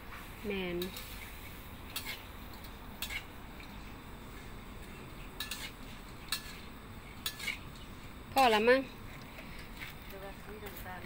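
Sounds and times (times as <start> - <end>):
metal spatula scraping a wok: 0.8 - 2.3, 3.0 - 3.4, 5.4 - 8.6.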